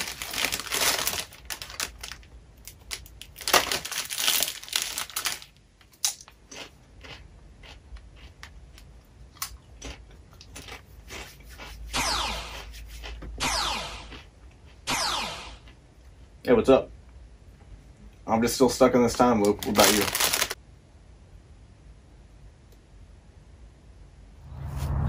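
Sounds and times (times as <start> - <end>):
chip bag crinkling: 0.0 - 8.5, 19.1 - 20.6
chip crunching and chewing: 0.0 - 13.4, 14.0 - 14.9, 19.4 - 20.6.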